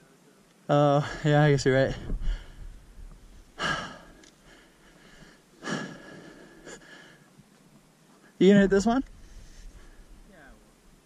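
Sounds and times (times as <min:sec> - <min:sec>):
person breathing loudly: 0:03.6 - 0:07.3.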